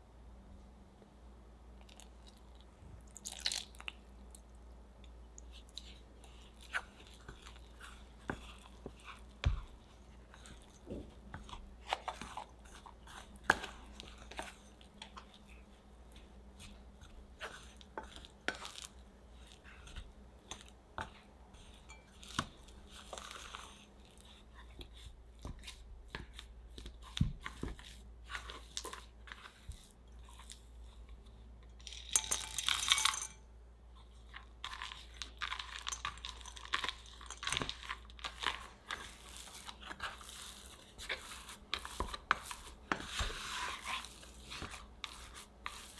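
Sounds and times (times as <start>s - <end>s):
scraper scraping crumbly mixture: 5.5s - 32.0s, 34.0s - 45.9s
scraper tapping glass bowl: 21.7s - 22.5s
chocolate chips rattling into bowl: 31.8s - 33.4s.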